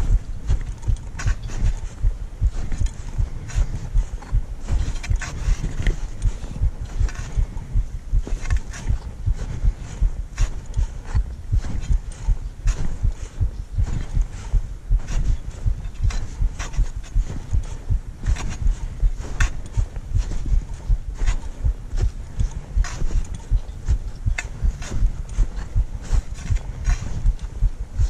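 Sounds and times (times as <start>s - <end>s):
footsteps thudding uphill: 0.0s - 28.0s.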